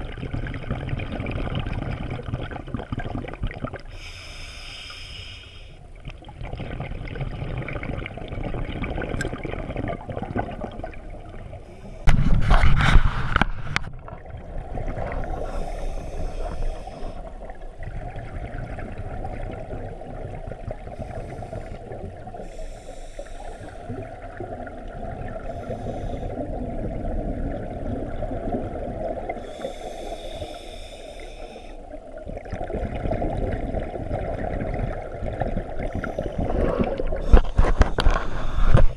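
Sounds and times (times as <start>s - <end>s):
regulator inhale hissing: 3.9s - 5.8s, 15.3s - 17.4s, 21.0s - 24.0s, 25.5s - 26.4s, 29.4s - 32.0s, 35.9s - 38.9s
regulator exhale bubbling: 14.1s - 38.9s
bubbles rushing past: 32.2s - 37.8s.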